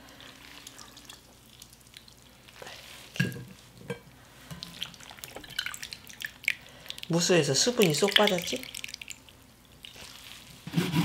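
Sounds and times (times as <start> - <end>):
water dripping into bowl: 0.6 - 2.3, 4.5 - 10.0.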